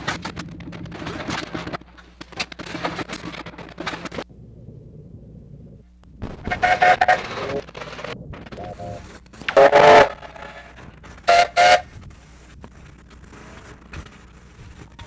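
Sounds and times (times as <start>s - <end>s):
film soundtrack crackling and popping: 0.0s - 15.0s
steam engine whistle: 9.6s - 10.3s, 11.2s - 11.9s.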